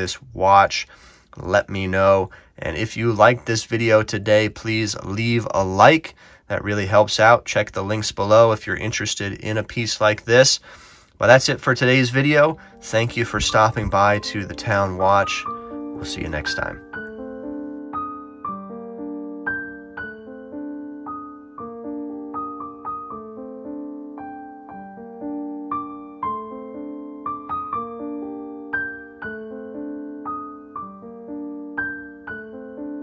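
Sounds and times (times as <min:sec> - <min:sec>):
slow electric piano tune: 0:12.5 - 0:33.0.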